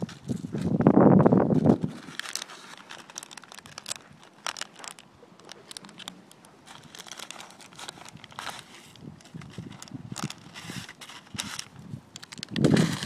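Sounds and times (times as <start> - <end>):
footsteps crunching on sand: 0.0 - 13.0.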